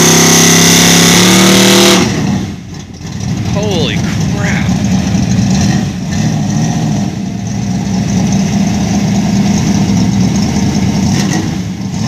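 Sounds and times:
vee eight engine idling: 3.1 - 5.6.

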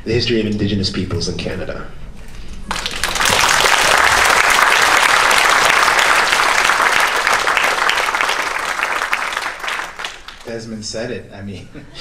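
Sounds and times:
audience applauding: 2.7 - 10.7.

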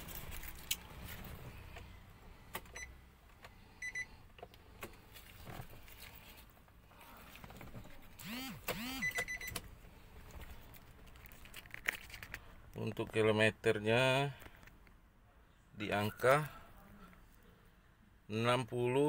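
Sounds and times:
steady high beep: 3.8 - 4.1
short high electronic beeps: 8.3 - 9.5.

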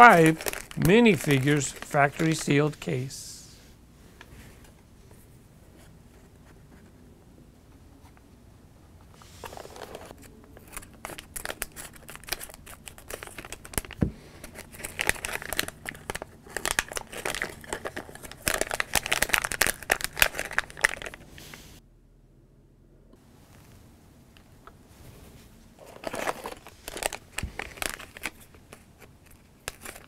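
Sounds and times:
foil plastic bag crinkling and tearing: 0.0 - 2.8, 10.6 - 21.2, 25.8 - 30.0.

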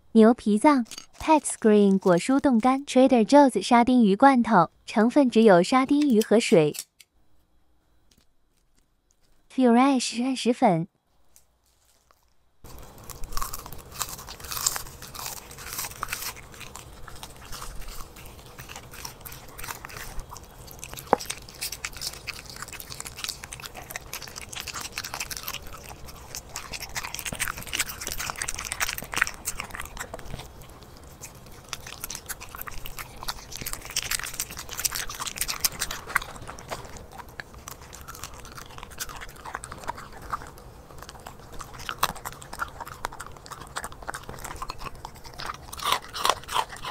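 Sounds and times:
dog chewing and crunching meat: 0.7 - 2.9, 11.8 - 46.9.

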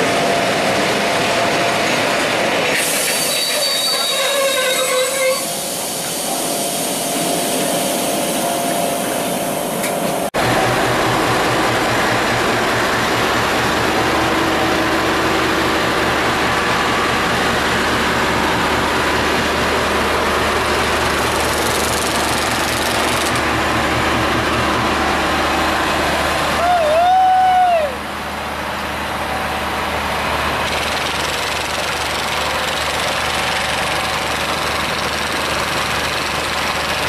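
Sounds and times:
diesel locomotive idling: 4.1 - 37.0.

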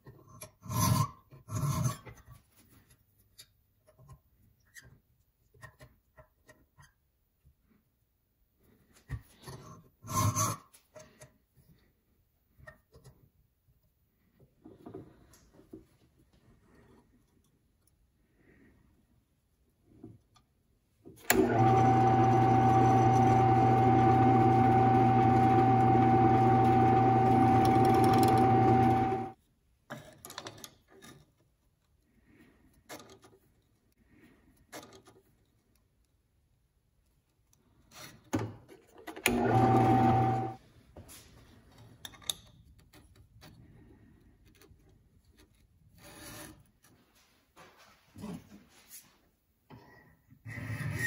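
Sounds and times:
drill press motor whine: 21.2 - 29.4, 39.2 - 40.6.

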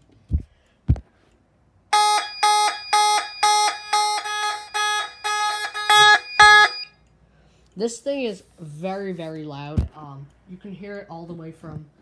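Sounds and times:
pulsing buzzy alarm horn: 1.9 - 7.0.

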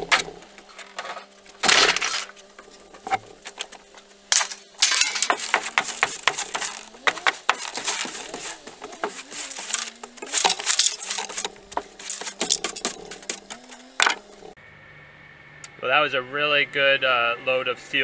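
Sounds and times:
broom bristles scraping boards: 0.0 - 14.5
scrap metal clinking: 4.3 - 14.2.

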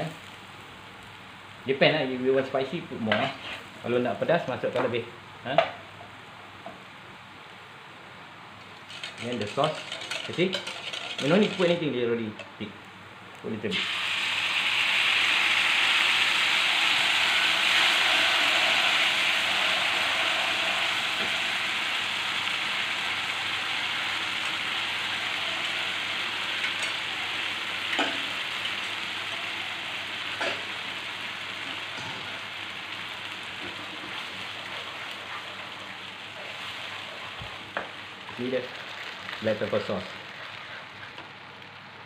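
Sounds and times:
sauce sizzling in frying pan: 0.0 - 4.3, 8.7 - 41.9
wooden spoon stirring: 8.9 - 11.8.

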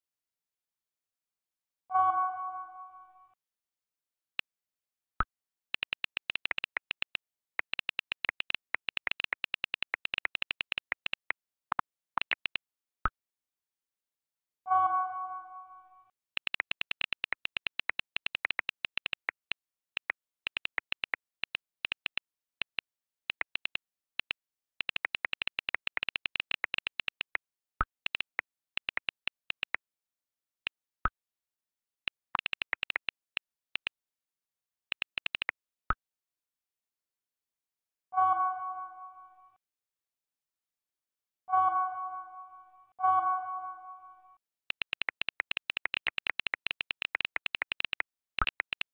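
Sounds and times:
phone keyboard taps: 5.8 - 12.6, 16.4 - 27.4, 28.1 - 29.8, 32.1 - 33.9, 34.9 - 35.5, 44.7 - 48.9.

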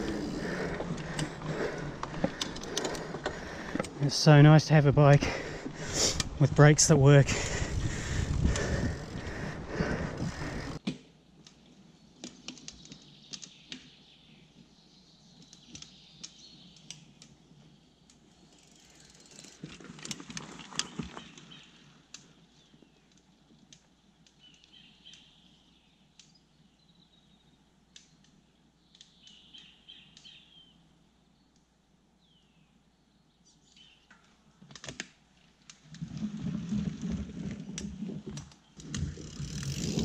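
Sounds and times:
bike tyres rolling on dirt trail: 0.0 - 25.8, 33.8 - 40.0.

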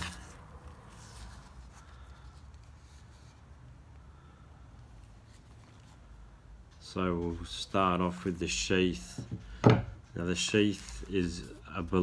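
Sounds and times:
soft rustles of knife handling: 0.0 - 12.0.

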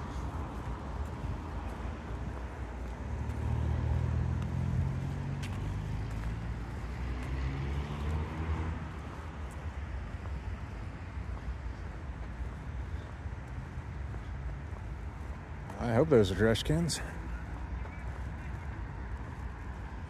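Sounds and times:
vehicle engines on street: 0.0 - 20.0.

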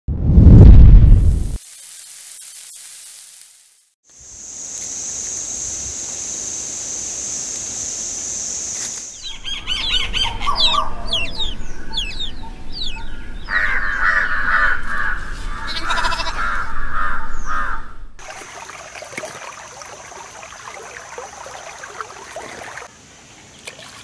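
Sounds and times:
faint hiss: 1.6 - 9.2
birds chirping: 9.1 - 18.2.

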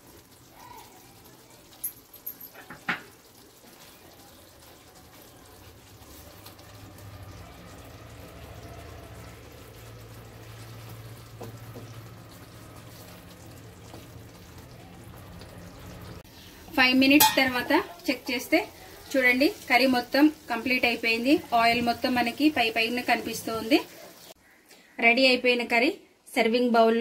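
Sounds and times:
spatula stirring thick curry: 3.2 - 15.5
spatula knocking on pan: 17.2 - 17.7.

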